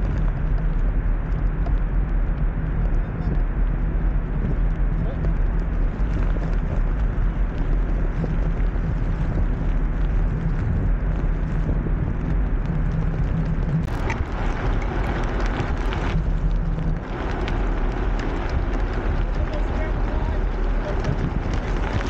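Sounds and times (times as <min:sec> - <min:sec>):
small tyres rolling on asphalt: 0:00.0 - 0:22.0
wind buffeting microphone: 0:00.0 - 0:22.0.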